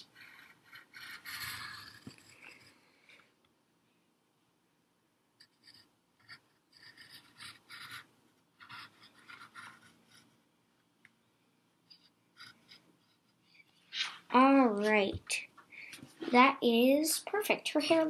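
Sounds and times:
pencil scratching on paper: 0.0 - 2.8, 5.4 - 10.4, 11.9 - 14.2.

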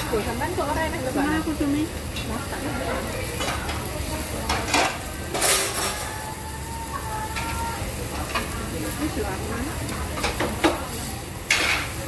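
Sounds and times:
meat sizzling on a grill: 0.0 - 12.0
plates and utensils clinking: 2.2 - 6.3, 10.0 - 12.0.

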